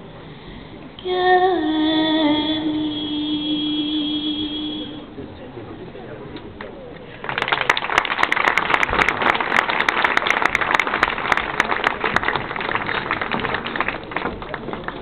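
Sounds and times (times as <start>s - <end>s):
audience applauding: 7.1s - 15.0s.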